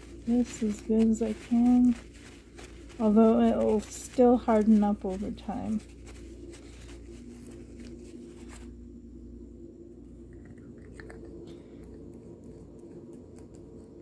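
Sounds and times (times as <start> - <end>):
paper towel rustling: 0.0 - 9.0
steady low hum: 0.0 - 14.0.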